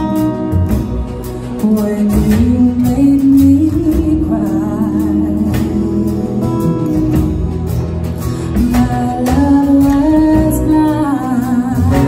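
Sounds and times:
woman singing: 0.0s - 7.4s, 8.5s - 12.0s
guitar: 0.0s - 12.0s
upright bass: 0.0s - 12.0s.

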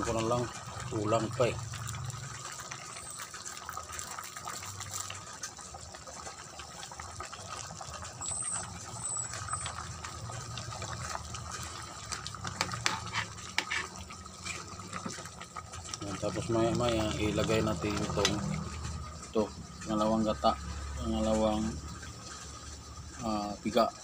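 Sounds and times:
chicken bubbling in a pan: 0.0s - 24.0s
spatula scraping a pan: 12.4s - 15.2s.

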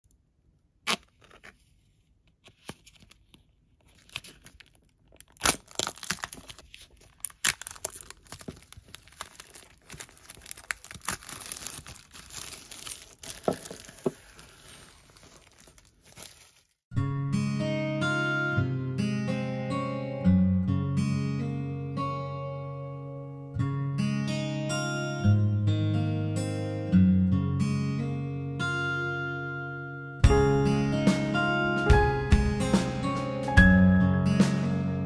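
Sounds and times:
plastic wrap crinkling and tearing: 2.4s - 16.8s.

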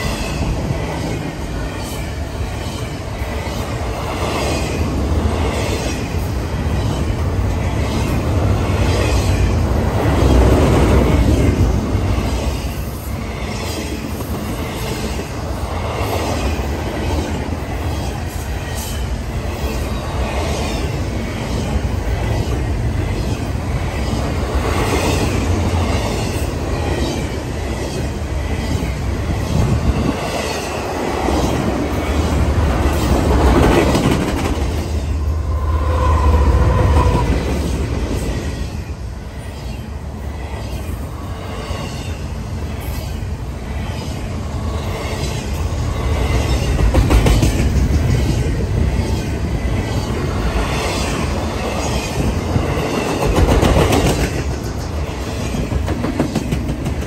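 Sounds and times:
diesel locomotive passing: 0.0s - 57.0s
freight train rumble: 0.0s - 57.0s.

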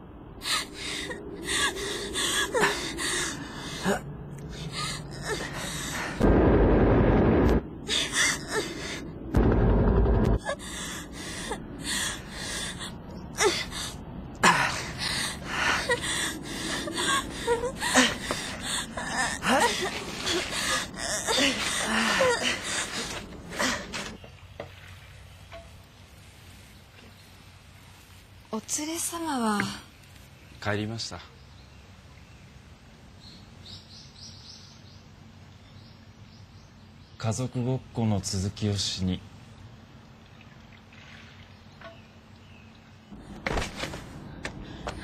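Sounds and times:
loud bursts of low noise: 0.0s - 13.3s
people gasping and whimpering: 0.4s - 6.2s, 7.9s - 9.1s, 10.4s - 24.2s.

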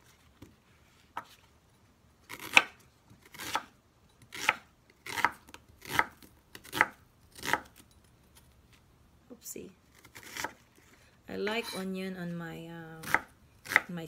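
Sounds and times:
knife slicing onion on board: 2.3s - 7.8s, 10.0s - 10.6s, 11.4s - 11.9s, 13.0s - 14.0s.

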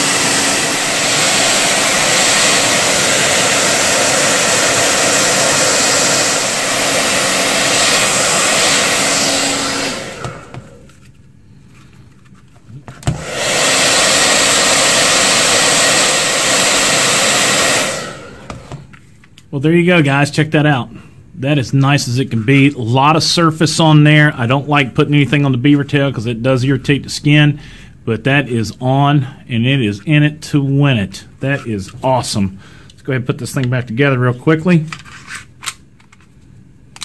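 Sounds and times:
hair dryer blowing: 0.0s - 10.9s, 13.0s - 19.0s.

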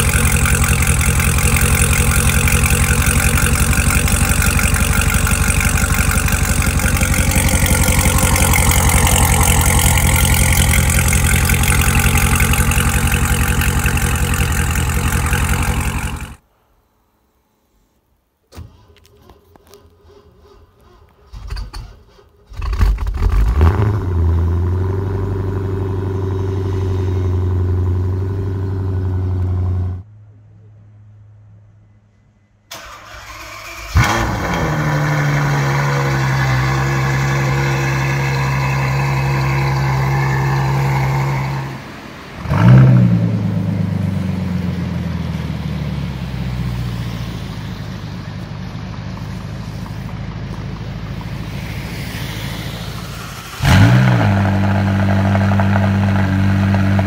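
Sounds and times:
engine cranking: 0.0s - 16.4s, 18.5s - 23.6s, 32.7s - 35.9s
car engine starting and idling: 0.0s - 16.5s, 18.4s - 30.1s, 32.7s - 57.0s.

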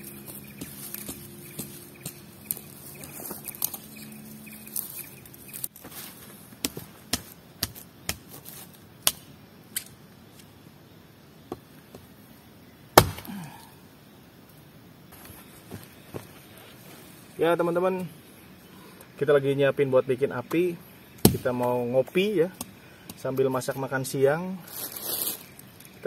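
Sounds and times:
axe chopping wood: 13.0s - 13.4s, 21.2s - 21.7s.

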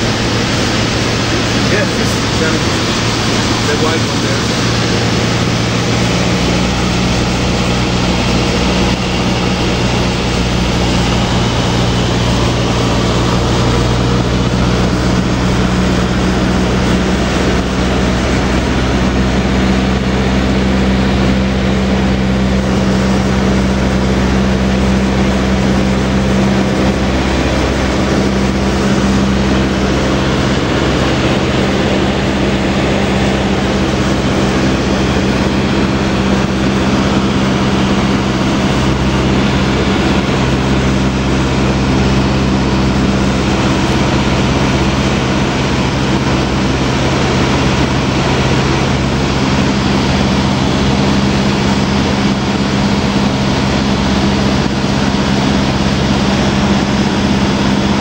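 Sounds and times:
airplane engine droning in cabin: 0.0s - 58.0s
rush of air noise: 0.0s - 58.0s.

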